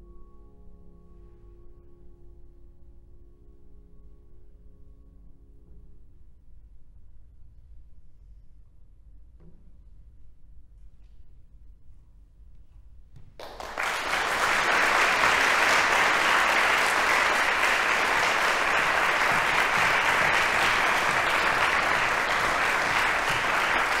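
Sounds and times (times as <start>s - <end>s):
audience applauding: 13.4s - 24.0s.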